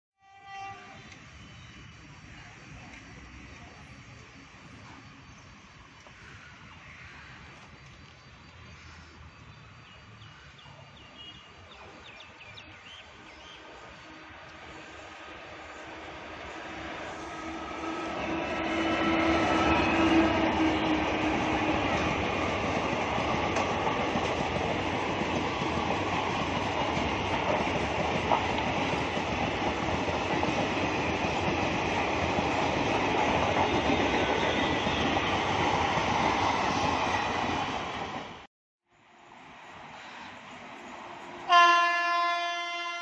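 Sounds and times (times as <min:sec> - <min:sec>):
train passing at speed: 0:00.2 - 0:43.0.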